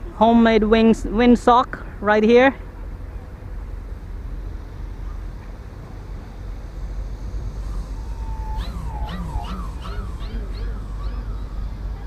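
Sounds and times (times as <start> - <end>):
warbling tone: 6.6 - 12.0.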